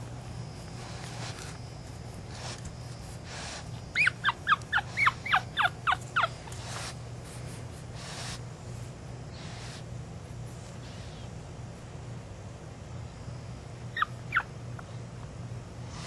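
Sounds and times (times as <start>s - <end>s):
faint rustles: 0.0s - 11.8s
puppy whimpering: 3.9s - 6.9s, 13.9s - 14.5s.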